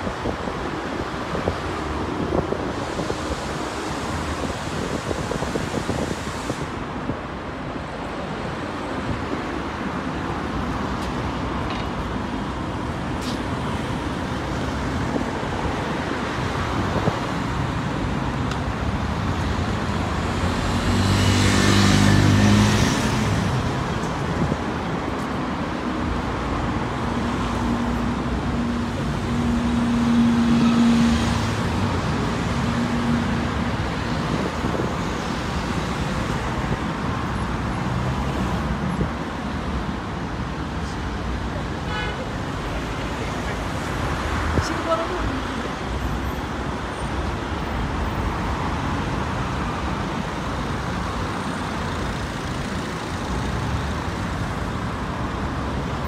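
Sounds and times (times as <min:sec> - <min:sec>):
road traffic noise: 0:00.0 - 0:56.0
loud vehicle passing: 0:19.9 - 0:23.9.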